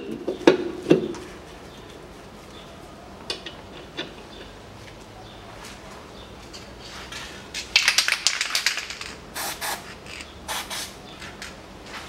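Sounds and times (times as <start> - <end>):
hissing spray bursts: 9.4 - 9.9, 10.5 - 11.0.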